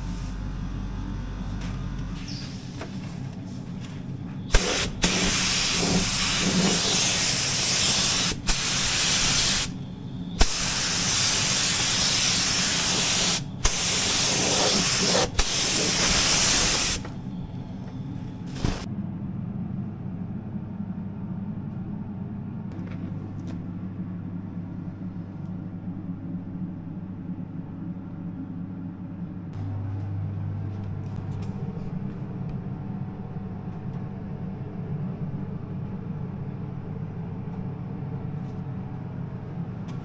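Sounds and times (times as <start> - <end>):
steady low hum: 0.0 - 40.0
paint spray gun hissing: 4.5 - 9.8, 10.4 - 17.1.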